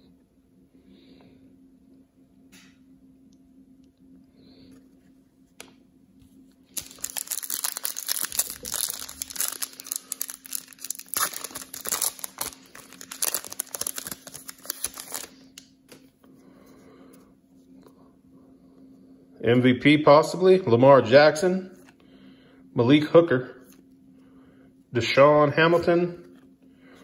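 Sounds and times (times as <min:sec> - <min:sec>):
plastic wrapper tearing and crinkling: 0:06.7 - 0:16.0
cards being handled: 0:06.7 - 0:16.1.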